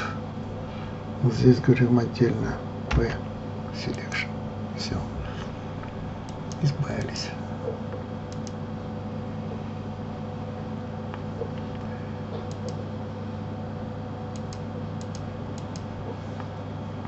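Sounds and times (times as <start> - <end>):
steady low hum: 0.0 - 17.0
computer mouse and keyboard clicks: 8.3 - 8.6, 11.4 - 12.8, 14.3 - 15.9.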